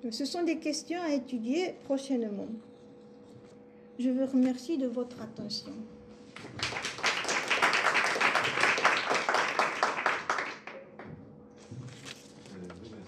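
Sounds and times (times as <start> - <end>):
audience applauding: 6.4 - 11.1.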